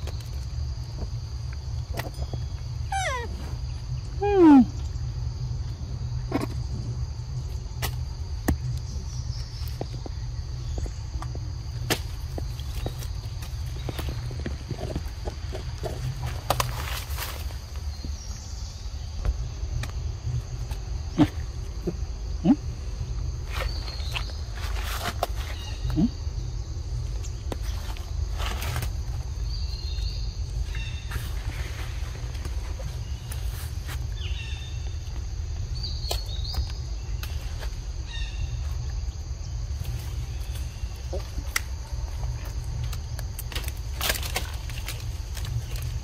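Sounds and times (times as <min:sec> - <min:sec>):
wind rumble on microphone: 0:00.0 - 0:21.7
insects buzzing: 0:00.0 - 0:46.0.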